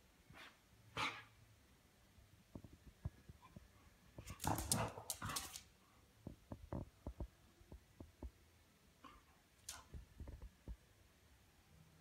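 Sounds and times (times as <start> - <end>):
paws tapping on tile floor: 2.5 - 8.4.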